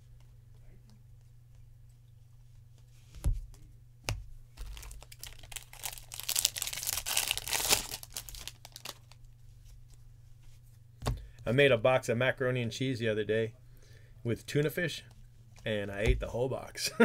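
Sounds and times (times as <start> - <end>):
foil wrapper crinkling and tearing: 4.6 - 9.2.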